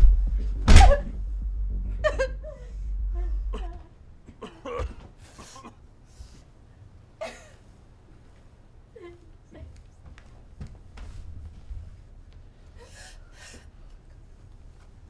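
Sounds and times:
heavy thud: 0.0 - 3.9
low music drone: 0.0 - 4.3.

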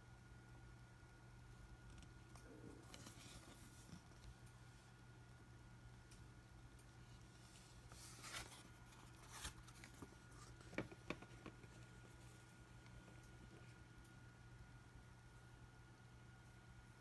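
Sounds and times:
paper rustling: 7.1 - 12.5.

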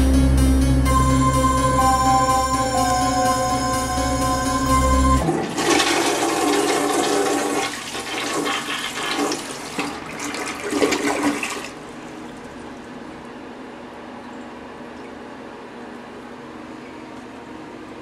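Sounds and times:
toilet flushing: 5.2 - 12.8.

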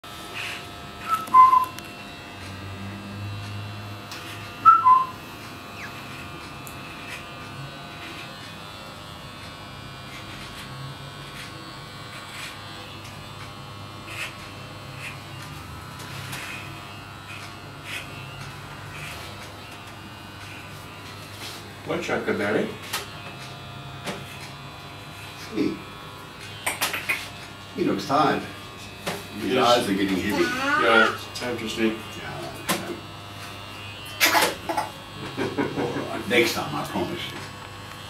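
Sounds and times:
hair trimmer buzzing: 0.1 - 38.0
falling two-note whistles: 1.1 - 1.7, 4.6 - 5.1.

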